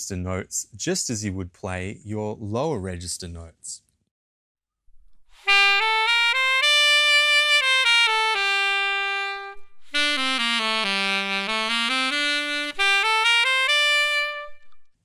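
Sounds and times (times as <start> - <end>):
alto saxophone playing: 5.3 - 15.0.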